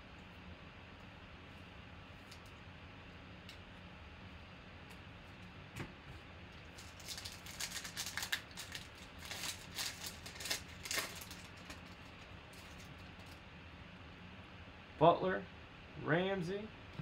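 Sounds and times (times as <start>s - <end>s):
foil wrapper crinkling and tearing: 6.6s - 13.4s.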